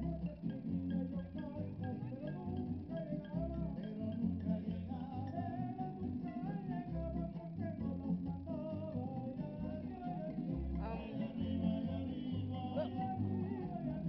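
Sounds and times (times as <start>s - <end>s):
bass: 0.0s - 14.0s
guitar: 0.0s - 14.0s
person singing: 0.0s - 14.0s.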